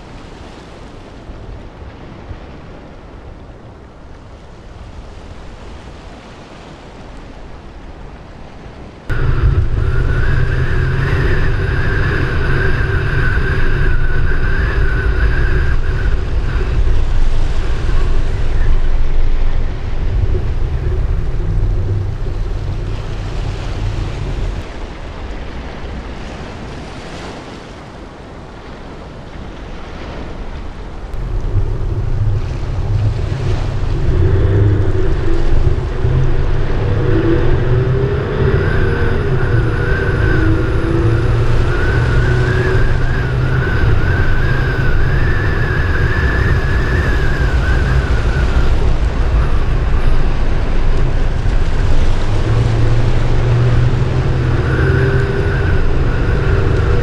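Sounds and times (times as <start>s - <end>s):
wind rushing over microphone: 0.0s - 57.0s
loud low rumble: 9.1s - 24.7s, 31.1s - 57.0s
wavering whine: 9.1s - 24.8s, 31.1s - 57.0s.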